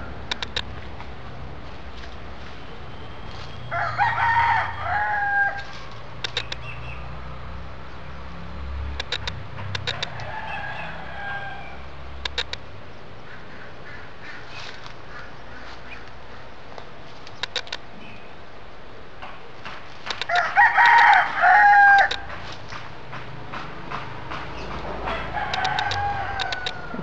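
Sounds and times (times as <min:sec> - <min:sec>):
short sharp clicks: 0:00.3 - 0:00.7, 0:06.2 - 0:06.7, 0:09.0 - 0:10.2, 0:12.2 - 0:12.6, 0:17.2 - 0:17.8
rooster crowing: 0:03.6 - 0:05.9, 0:09.9 - 0:11.9, 0:20.2 - 0:22.3, 0:25.0 - 0:27.0.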